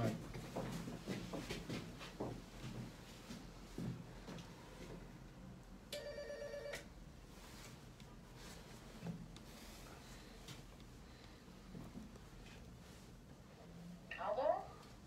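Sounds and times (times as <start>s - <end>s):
intercom electronic ringing tone: 6.0s - 6.8s.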